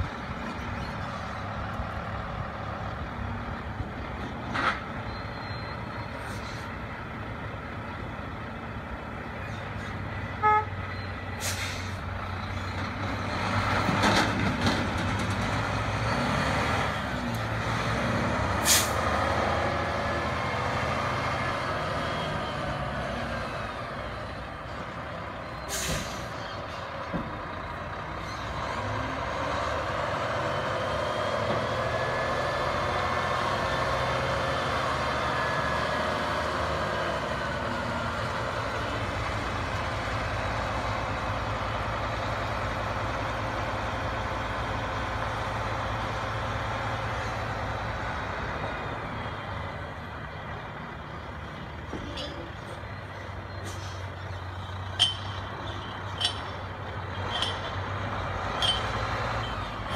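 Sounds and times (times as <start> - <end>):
diesel truck engine running: 0.0 - 59.9
air brake hisses: 11.4 - 12.0, 18.6 - 19.0, 25.7 - 26.4.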